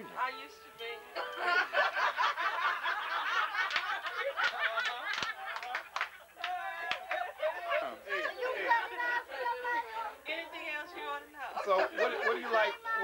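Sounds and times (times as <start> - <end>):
women laughing: 1.4 - 9.2, 11.6 - 13.0
hand claps: 3.6 - 7.4.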